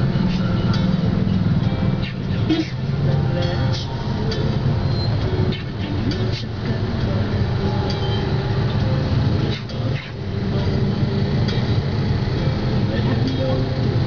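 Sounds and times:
motorbike and scooter traffic drone: 0:00.0 - 0:14.0.

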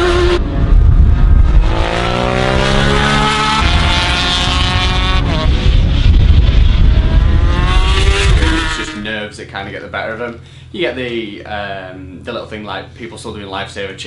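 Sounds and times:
motorcycle engines revving high: 0:00.0 - 0:09.1.

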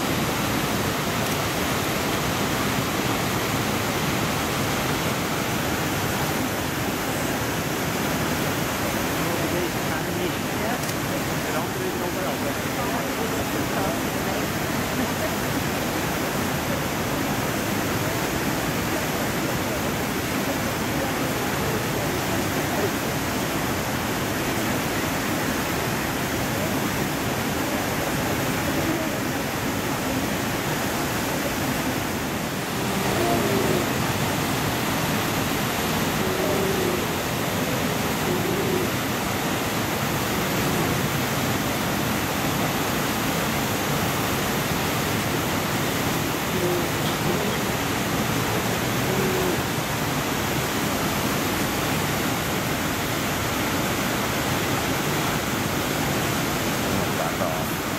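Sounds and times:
river rushing over rapids: 0:00.0 - 0:57.9.

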